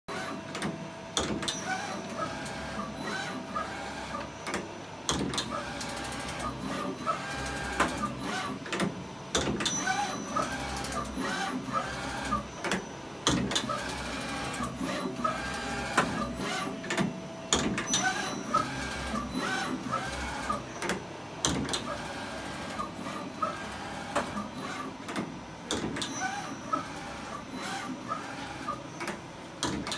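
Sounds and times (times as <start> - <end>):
clicks and short squeaks: 9.4 - 13.8, 17.5 - 21.0, 25.7 - 29.9.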